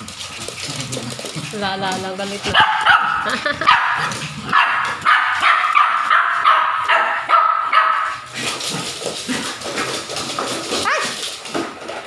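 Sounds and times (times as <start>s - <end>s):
dogs barking and yipping: 0.0s - 8.6s, 10.6s - 11.4s
dogs scuffling: 0.0s - 12.0s.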